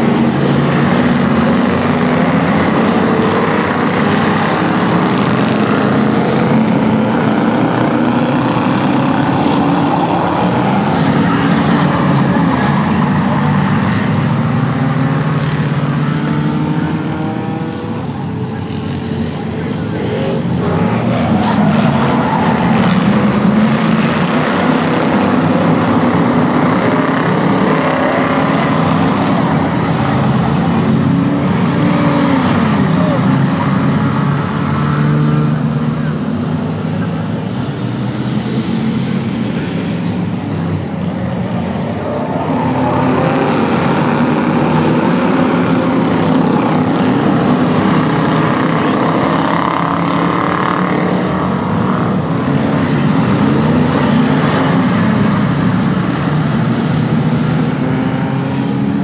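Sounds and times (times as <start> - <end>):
race car engines passing: 0.0 - 59.0.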